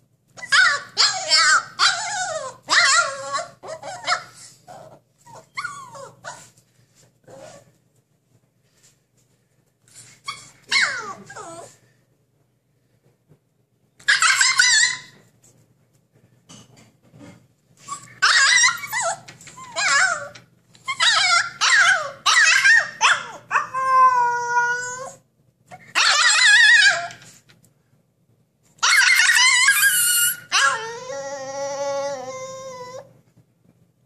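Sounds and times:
puppy howling and yowling: 0:00.4 - 0:06.5, 0:10.7 - 0:11.8, 0:18.2 - 0:25.2, 0:25.8 - 0:27.2, 0:28.8 - 0:33.1.

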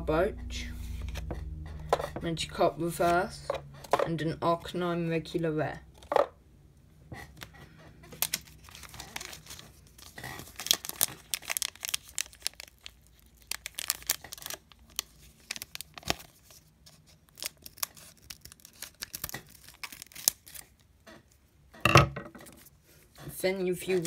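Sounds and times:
foil wrapper crinkling and tearing: 0:07.4 - 0:20.9.

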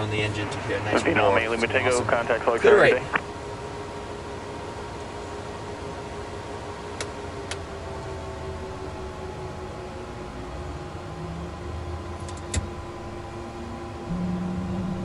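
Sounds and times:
electrical and fan hum: 0:00.0 - 0:15.0
faint steady whines: 0:00.0 - 0:15.0
deep engine start hum: 0:07.4 - 0:15.0.

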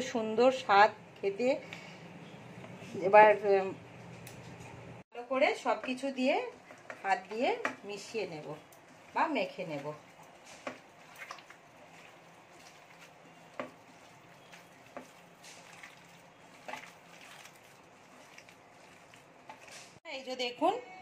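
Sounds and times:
hand kneading wet mixture: 0:05.6 - 0:20.0.

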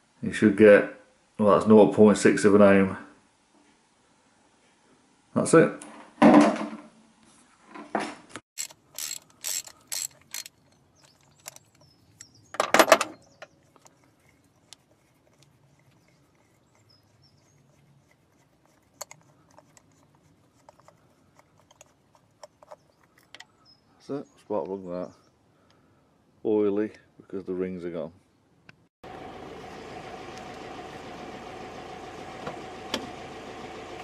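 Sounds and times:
tool clatter: 0:07.8 - 0:11.9, 0:12.5 - 0:16.6
sharp metal clicks of hand tools: 0:08.6 - 0:12.4, 0:19.0 - 0:20.0.

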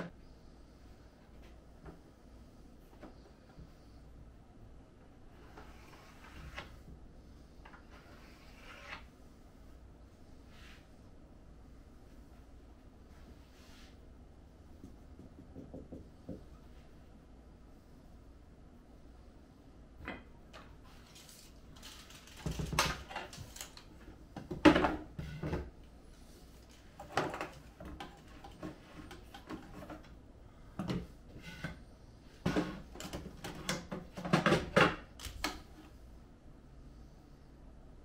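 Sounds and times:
sharp knock on wood: 0:14.8 - 0:16.4.

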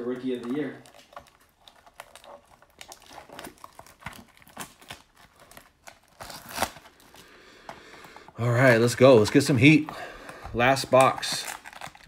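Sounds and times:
cardboard box crinkling: 0:00.0 - 0:07.2, 0:08.4 - 0:12.0
seal peeling off box: 0:00.8 - 0:07.1.

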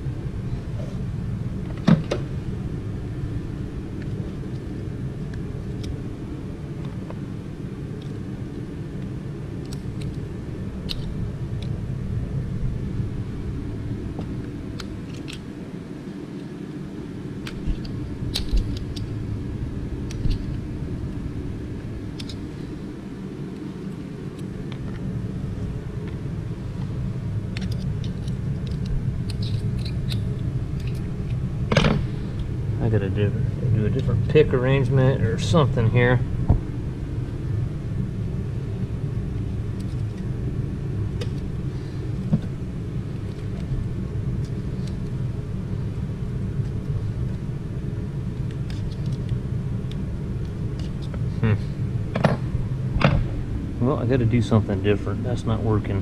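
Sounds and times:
low rumble: 0:16.9 - 0:56.0.

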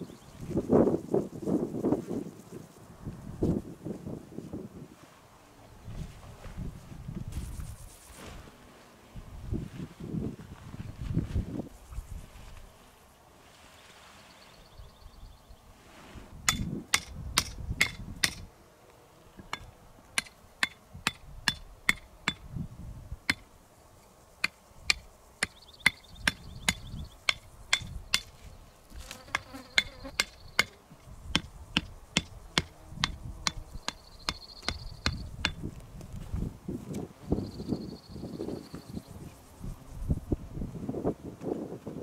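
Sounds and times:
faint insect buzz: 0:05.2 - 0:16.4, 0:18.1 - 0:41.8
sharp hammering knocks: 0:16.5 - 0:18.5, 0:19.4 - 0:22.5, 0:24.4 - 0:28.3, 0:29.3 - 0:35.7.

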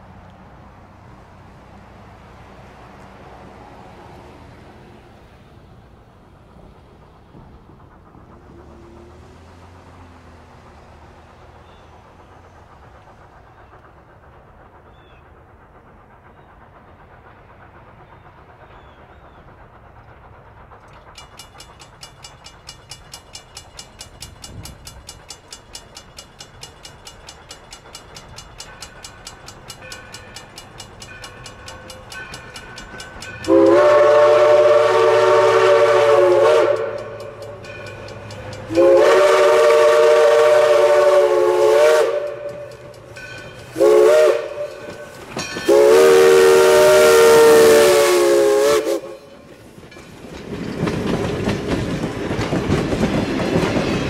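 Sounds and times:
steam locomotive exhaust beating: 0:00.0 - 0:54.0
steam whistle blasts: 0:33.3 - 0:42.9, 0:43.7 - 0:45.1, 0:45.7 - 0:49.4.

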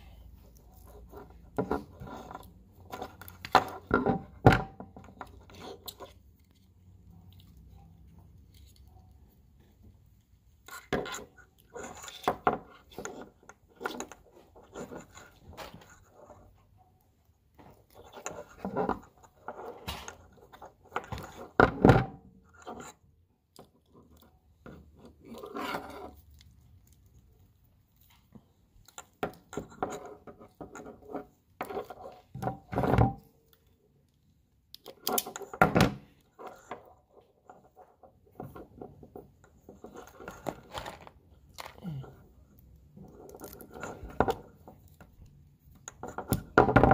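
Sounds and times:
wires and connectors rustling: 0:23.5 - 0:46.9.

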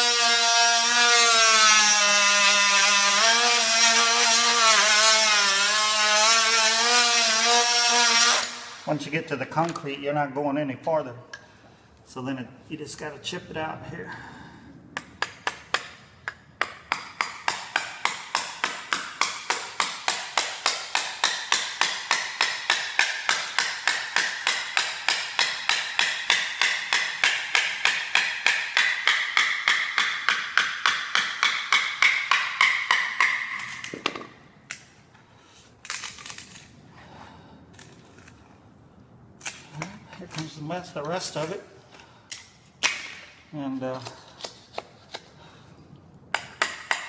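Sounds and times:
hammer striking chisel: 0:15.0 - 0:34.3, 0:46.3 - 0:47.0.

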